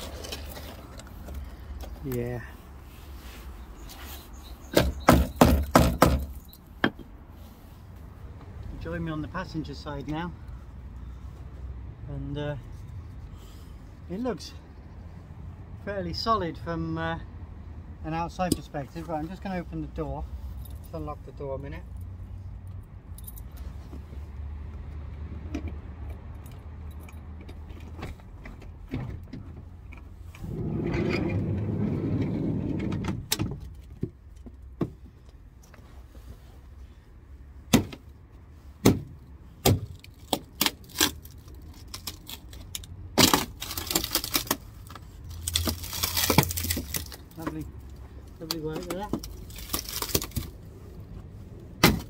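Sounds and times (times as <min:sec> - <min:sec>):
rusty metal crunching and scraping: 0:00.0 - 0:07.3, 0:38.9 - 0:50.6
sharp knocks: 0:04.7 - 0:07.1.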